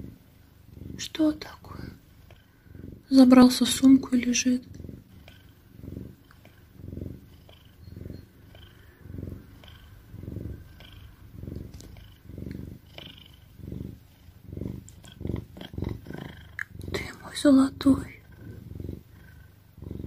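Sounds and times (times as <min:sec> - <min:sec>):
cat purring: 0:00.0 - 0:20.0.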